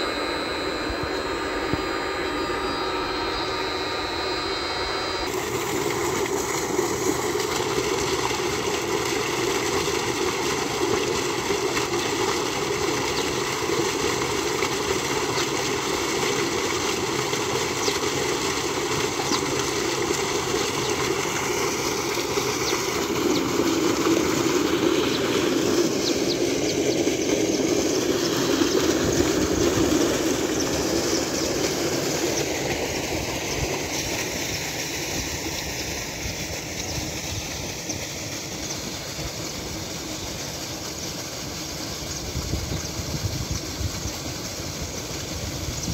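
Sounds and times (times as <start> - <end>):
water gushing into concrete tank: 5.2 - 45.9.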